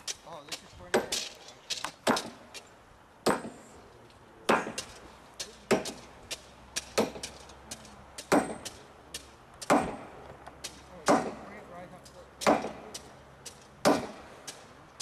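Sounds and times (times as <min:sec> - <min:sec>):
spike maul heavy blows: 0:13.8 - 0:14.3.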